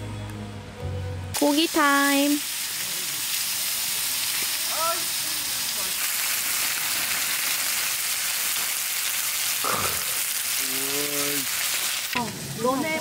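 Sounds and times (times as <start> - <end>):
meat sizzling on griddle: 1.4 - 13.0.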